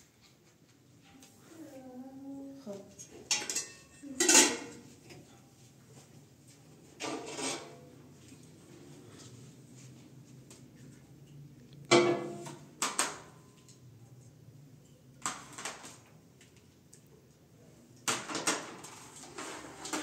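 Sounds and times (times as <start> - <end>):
plates clinking on metal tray: 3.2 - 5.3
steel tray clanging on counter: 3.3 - 4.8.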